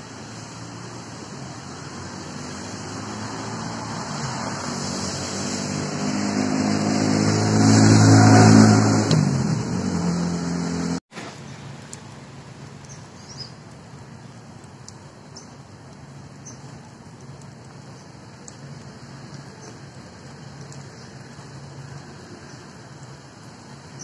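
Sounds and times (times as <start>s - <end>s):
light steady rain: 0.0s - 24.0s
vehicle engine passing by: 0.2s - 11.0s
water drips: 11.1s - 24.0s.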